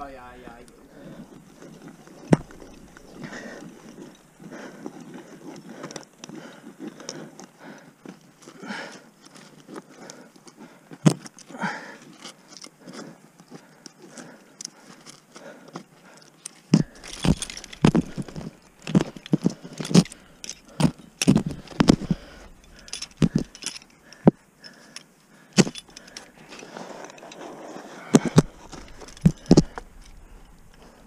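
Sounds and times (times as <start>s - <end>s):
carabiners jangling: 1.0s - 7.2s, 16.1s - 27.5s, 28.2s - 31.0s.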